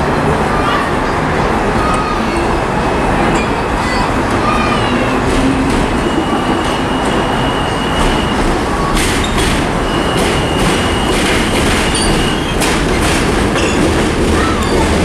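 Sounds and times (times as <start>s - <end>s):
subway train rumbling: 0.0s - 15.0s
high wheel squeal: 2.0s - 12.8s, 13.5s - 15.0s
wheels clacking over rail joints: 3.2s - 15.0s.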